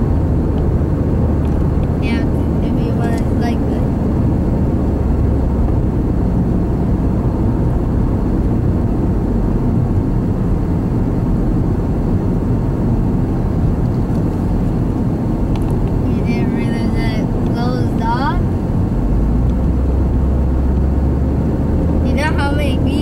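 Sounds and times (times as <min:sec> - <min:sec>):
car interior low rumble: 0:00.0 - 0:23.0.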